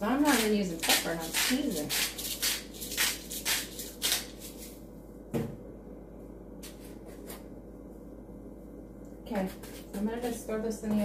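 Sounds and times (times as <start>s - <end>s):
spice shaker rattling: 1.2s - 4.8s.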